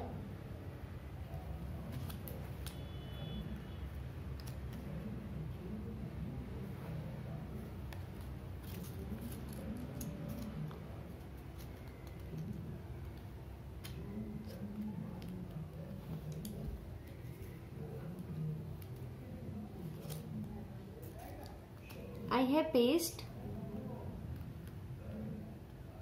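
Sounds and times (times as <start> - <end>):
low steady background noise: 0.0 - 26.0
paper rustling: 8.0 - 22.2.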